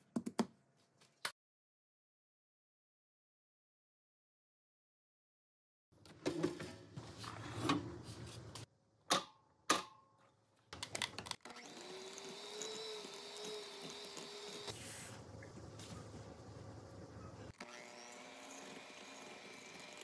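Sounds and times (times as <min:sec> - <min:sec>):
electric hand mixer whining: 0:11.4 - 0:14.8, 0:17.5 - 0:20.0.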